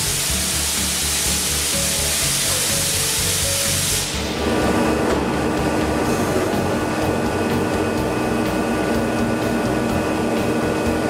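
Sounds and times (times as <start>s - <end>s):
machine mechanical hum: 0.0s - 11.0s
machine whining tones: 0.0s - 11.0s
low rumble: 4.2s - 10.4s.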